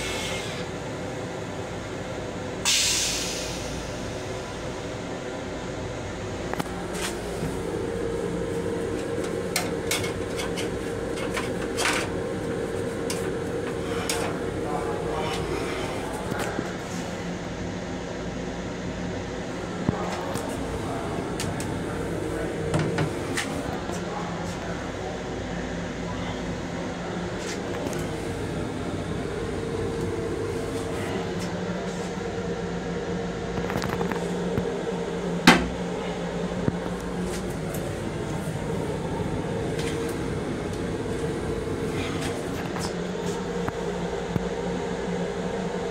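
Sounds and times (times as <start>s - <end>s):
moving train hum: 0.0s - 45.9s
toilet lid clacking shut: 35.5s - 35.8s.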